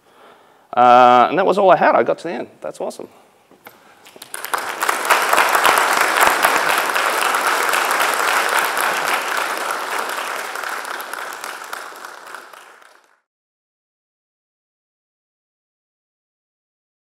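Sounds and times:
audience applauding: 4.0s - 13.3s.

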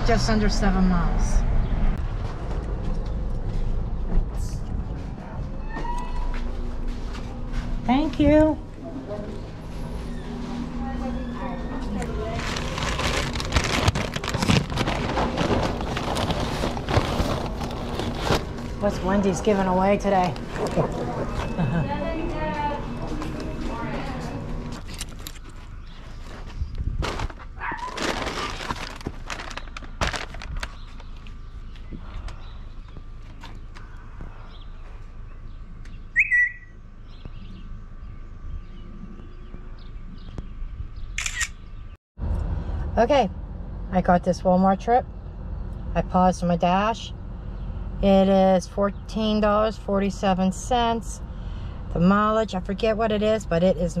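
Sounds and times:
paper bag crinkling and rustling: 11.8s - 21.8s, 24.2s - 31.4s
birds chirping: 15.9s - 27.0s, 29.3s - 42.0s
high bird whistle: 36.2s - 36.7s.

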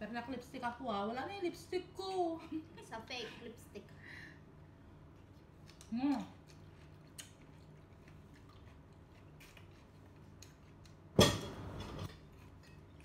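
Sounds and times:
dishes clattering: 11.2s - 12.1s.

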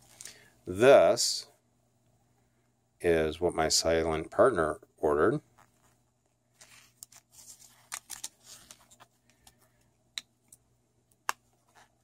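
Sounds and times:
plastic sleeve crinkling: 6.6s - 9.6s.

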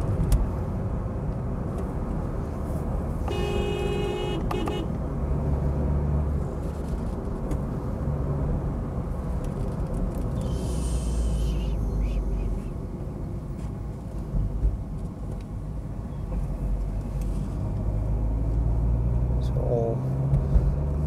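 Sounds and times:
car engine and road noise: 0.0s - 21.0s
car horn: 3.2s - 5.0s.

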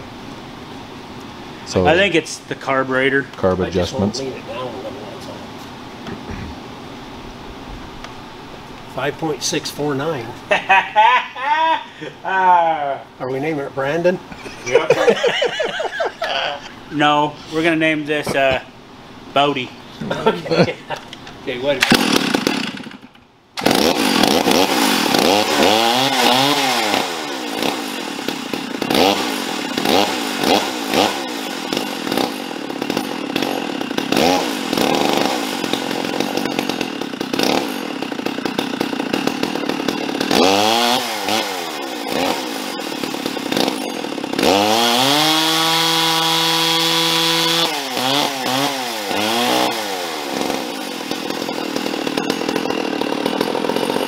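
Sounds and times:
chainsaw revving: 14.4s - 16.7s, 21.6s - 54.0s.

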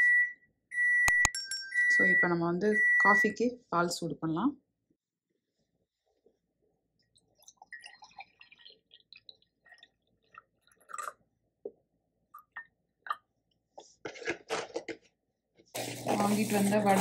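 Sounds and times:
milk pouring into a mug: 7.1s - 11.8s, 15.8s - 17.0s.

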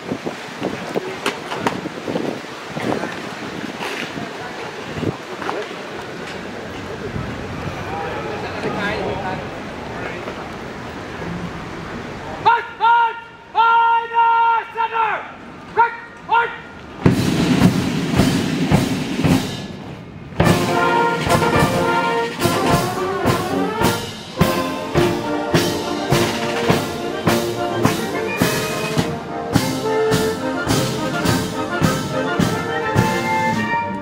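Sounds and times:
brass band playing a march: 17.0s - 19.8s, 20.4s - 34.0s
marching drums beating: 17.0s - 33.8s.

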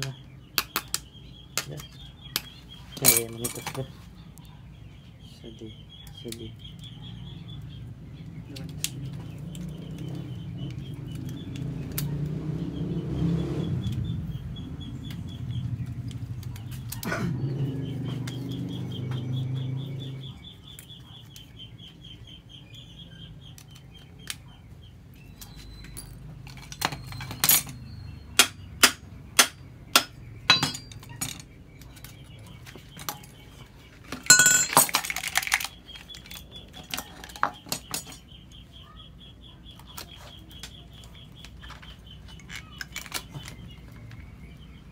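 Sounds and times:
metal clicking and clinking: 3.0s - 3.9s, 25.8s - 27.8s, 30.5s - 32.2s, 34.1s - 38.3s
metal rattle: 30.5s - 31.6s, 34.2s - 35.9s.

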